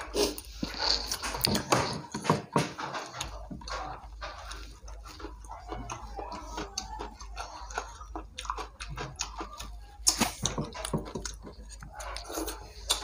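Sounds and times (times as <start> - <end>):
chewing and lip smacks: 3.1 - 13.0.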